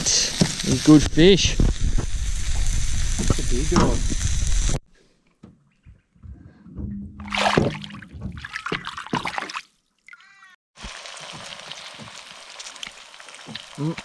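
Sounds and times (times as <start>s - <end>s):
eggs sizzling in a pan: 0.0s - 4.8s, 10.8s - 14.0s
fish splashing in water: 7.3s - 13.7s.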